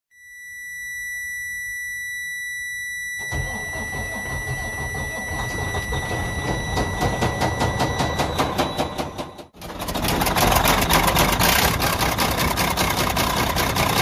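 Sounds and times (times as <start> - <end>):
high dashboard warning tone: 0.1 - 9.6
diesel engine running: 3.3 - 14.0
rapid engine knock: 5.4 - 14.0.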